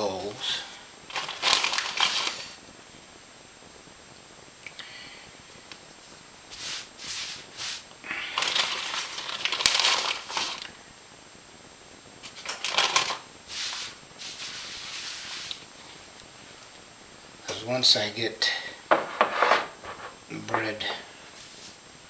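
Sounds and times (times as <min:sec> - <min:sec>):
hand scrubbing cloth: 0:06.5 - 0:07.8, 0:13.5 - 0:15.6.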